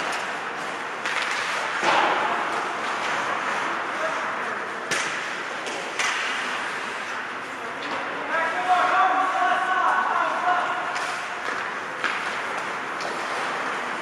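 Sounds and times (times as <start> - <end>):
hockey sticks cracking on puck: 0.0 - 3.6, 4.8 - 8.1, 10.6 - 14.0.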